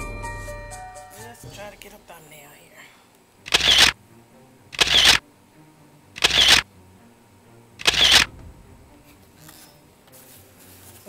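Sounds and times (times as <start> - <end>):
camera shutter: 3.5 - 4.0, 4.8 - 5.2, 6.2 - 6.6, 7.8 - 8.3.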